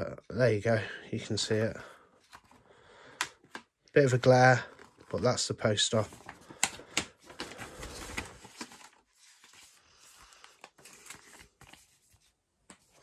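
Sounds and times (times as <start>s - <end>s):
paper crackling and rustling: 4.6s - 13.0s.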